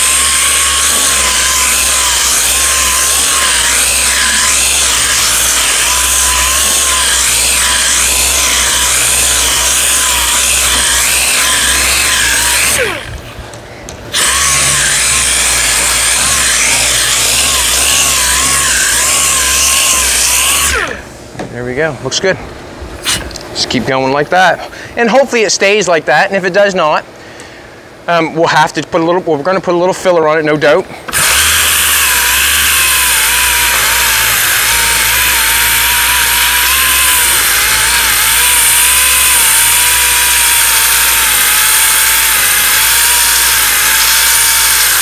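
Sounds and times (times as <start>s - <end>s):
orbital sander whining: 0.0s - 21.2s, 31.1s - 45.0s.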